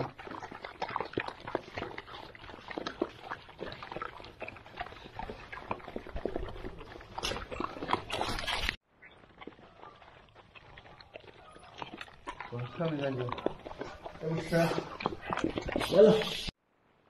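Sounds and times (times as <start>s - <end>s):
puppies crunching dry kibble: 0.0s - 16.5s.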